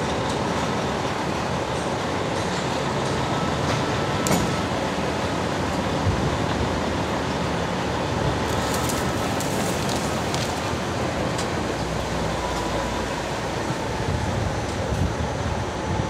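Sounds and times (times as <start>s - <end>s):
diesel truck engine rumbling: 0.0s - 16.0s
leaves brushing against cab: 8.4s - 13.8s.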